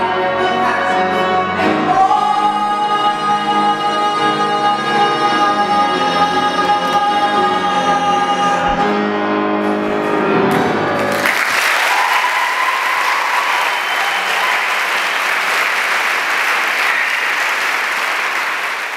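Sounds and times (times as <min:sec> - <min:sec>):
man singing with accompaniment: 0:00.0 - 0:09.4
audience applauding: 0:11.0 - 0:18.9.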